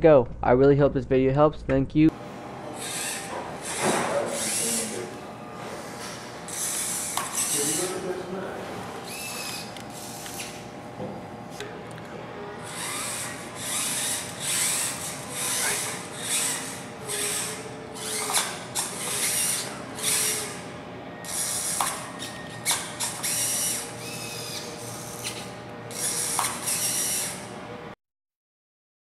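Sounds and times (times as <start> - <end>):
robot motors and gears whirring: 2.8 - 5.1, 5.8 - 8.0, 9.1 - 10.6, 12.7 - 20.6, 21.2 - 27.5
clicks and brief whines: 2.8 - 7.8, 9.0 - 10.7, 12.7 - 27.5.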